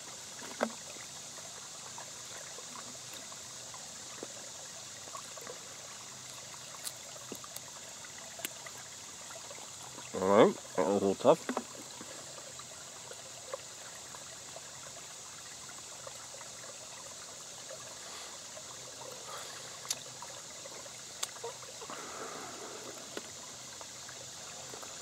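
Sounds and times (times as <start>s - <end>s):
stream trickling over rocks: 0.0s - 25.0s
high insect-like drone: 18.0s - 25.0s.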